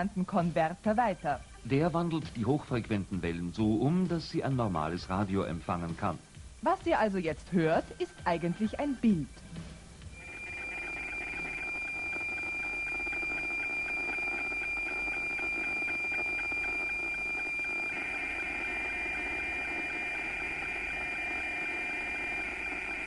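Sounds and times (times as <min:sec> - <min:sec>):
satellite signal tone with ticking: 0:10.1 - 0:23.0.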